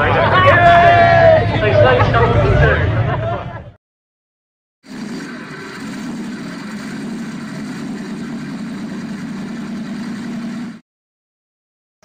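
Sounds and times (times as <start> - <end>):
car engine idling: 4.9 - 10.8.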